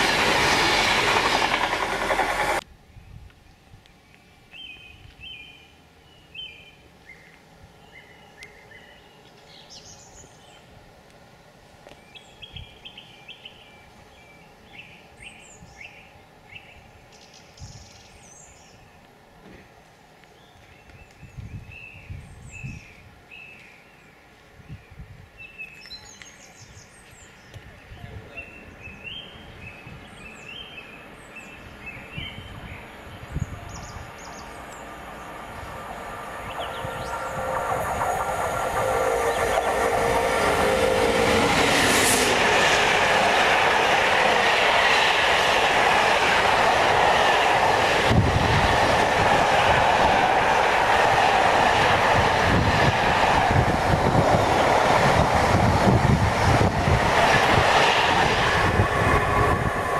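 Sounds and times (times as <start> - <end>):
songbirds singing and chirping: 20.2 - 40.5
low rumbles: 33.9 - 47.0.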